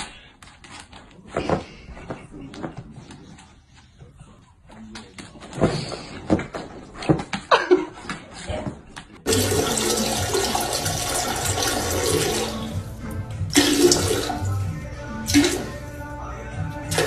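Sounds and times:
toilet flushing: 0:09.3 - 0:16.0.

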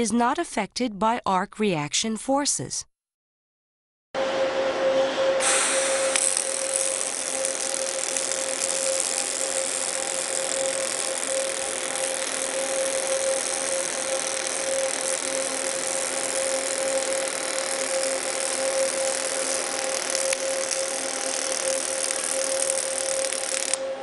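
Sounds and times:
mid-pitched hum: 0:04.2 - 0:24.0
arc welding crackling hiss: 0:05.4 - 0:23.8.

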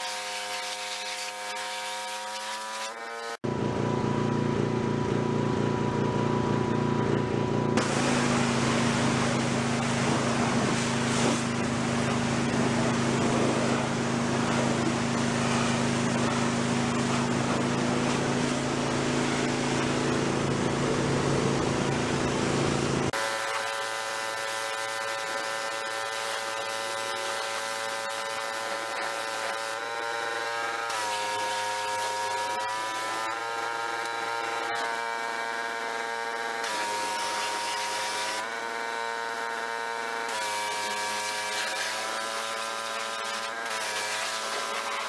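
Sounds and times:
water jet blasting metal hull: 0:00.0 - 0:03.4, 0:07.7 - 0:45.0
pressure washer motor humming: 0:00.0 - 0:45.0.

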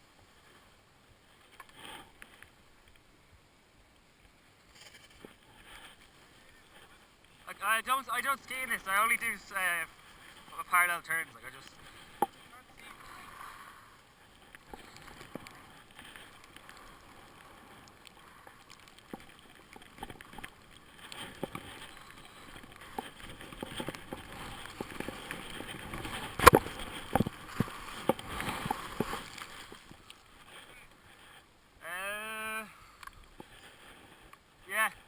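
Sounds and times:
clicks and knocks of ski gear: 0:01.3 - 0:03.1, 0:04.6 - 0:07.4, 0:11.8 - 0:12.5, 0:14.4 - 0:30.8, 0:33.0 - 0:34.5
skis scraping over snow: 0:04.6 - 0:31.5.

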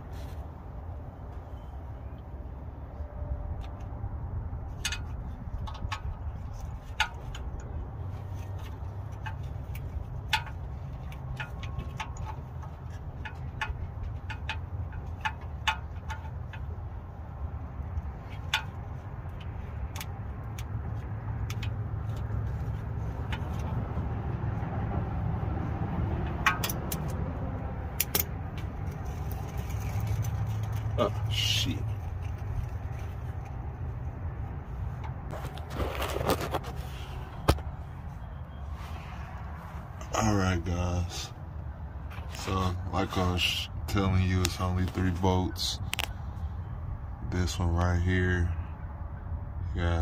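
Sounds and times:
steady low rumble: 0:00.0 - 0:50.0
metallic tool clicks and taps: 0:27.9 - 0:29.0.

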